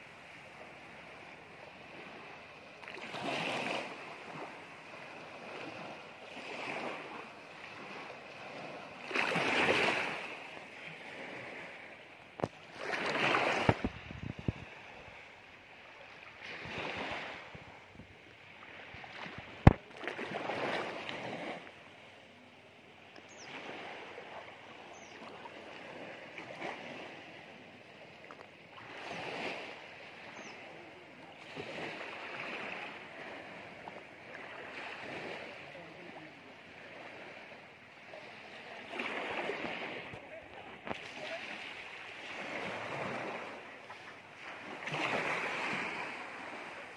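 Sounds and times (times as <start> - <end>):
small waves lapping: 0.0 - 46.9.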